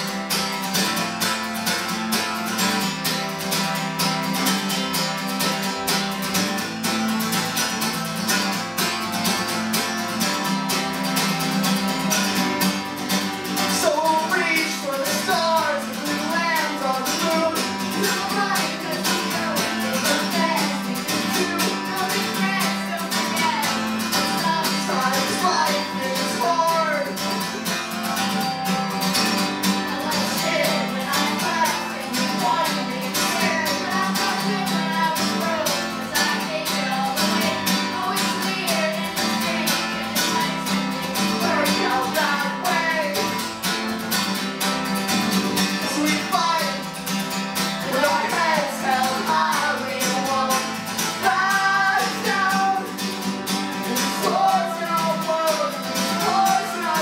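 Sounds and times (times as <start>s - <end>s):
acoustic guitar strumming: 0.0s - 57.0s
person singing wordless melody: 13.6s - 28.6s, 29.7s - 43.5s, 45.8s - 47.0s, 47.8s - 57.0s.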